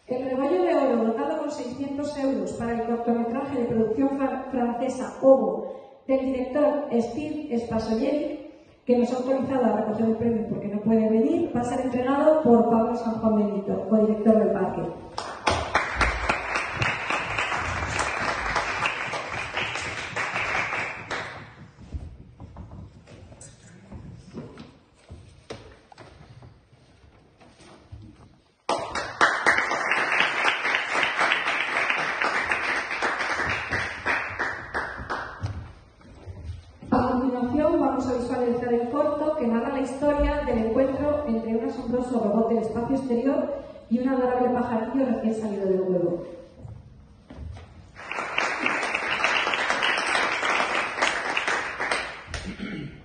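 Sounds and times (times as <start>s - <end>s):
audience applauding: 15.2s - 21.6s, 28.7s - 35.5s, 48.0s - 52.5s.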